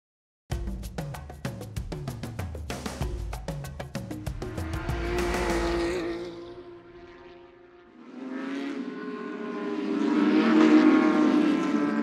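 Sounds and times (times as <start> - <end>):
race car engines at high revs: 4.5 - 12.0.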